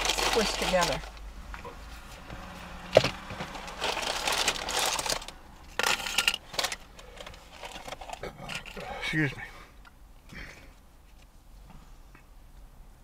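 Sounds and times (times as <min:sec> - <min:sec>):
rustling crinkling handling: 0:00.0 - 0:01.2, 0:03.0 - 0:08.8.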